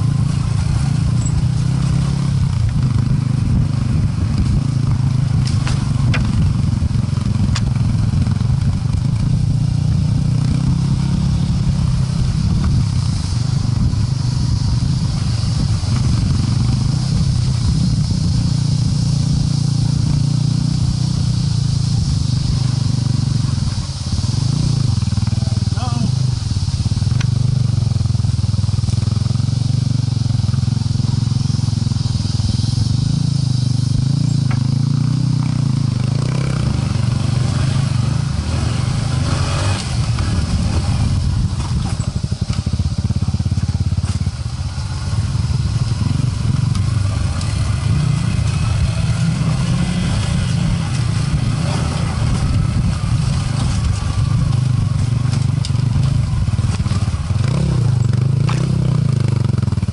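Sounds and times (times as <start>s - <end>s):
motorcycle engine at low revs: 0.0s - 59.9s.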